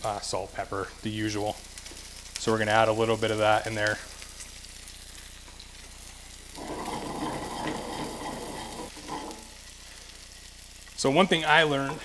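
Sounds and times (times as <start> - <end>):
fish sizzling in a skillet: 0.0 - 12.0
skillet scraping on burner: 6.5 - 9.6.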